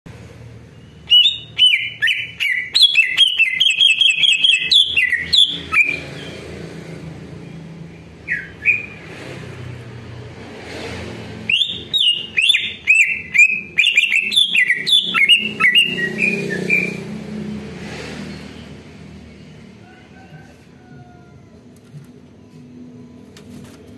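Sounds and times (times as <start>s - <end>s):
bird singing chirps and whistles: 0.7s - 6.4s, 8.2s - 9.0s, 11.4s - 17.2s.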